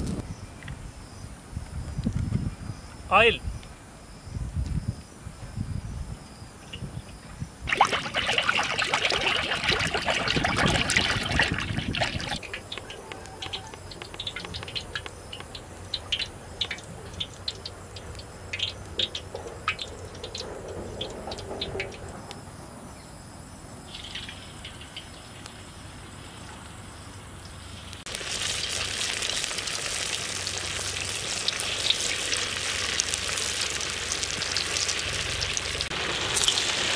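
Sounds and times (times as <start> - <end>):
oil pouring and gurgling: 7.7 - 22.0, 28.1 - 36.9.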